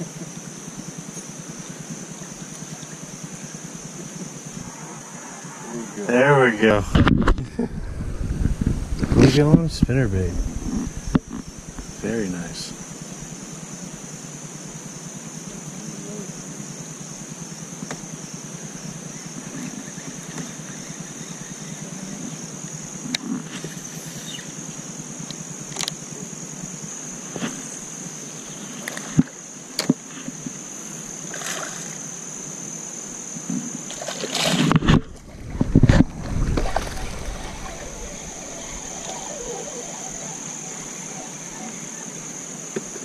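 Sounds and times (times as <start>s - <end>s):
thin high whine: 4.0s - 13.5s, 34.8s - 43.0s
water sloshing around boat: 33.9s - 41.8s.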